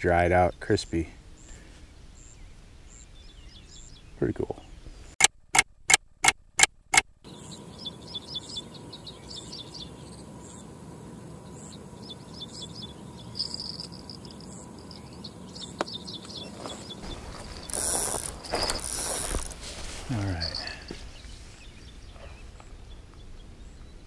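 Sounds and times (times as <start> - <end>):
high chirping trills: 7.2 - 10.8, 11.4 - 24.0
footsteps through grass: 16.3 - 22.4.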